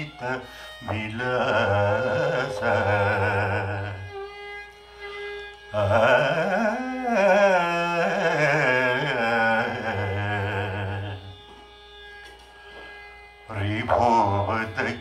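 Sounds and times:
man chanting in slow free time: 0.0s - 4.1s, 13.5s - 15.0s
violin following melody: 0.0s - 15.0s.

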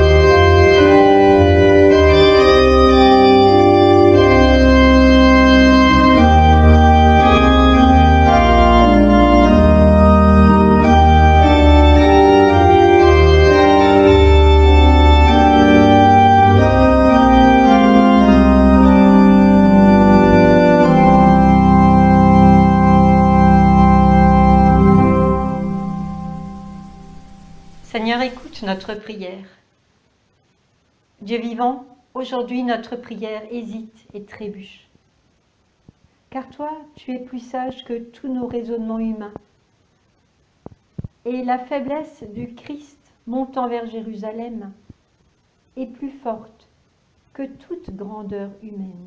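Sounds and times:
organ playing sustained chords: 0.0s - 29.0s.

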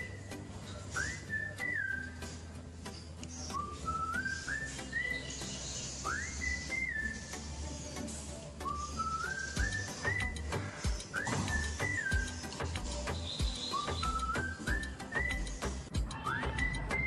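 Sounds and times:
whistled melody: 0.0s - 17.0s
light ticking beat: 8.4s - 17.0s.

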